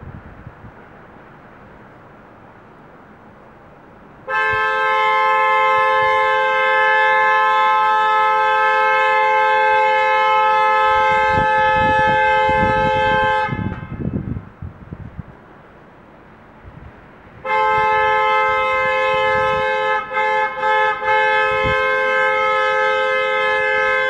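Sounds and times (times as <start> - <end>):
two-tone car horn blast: 4.2 - 14.3, 17.4 - 24.0.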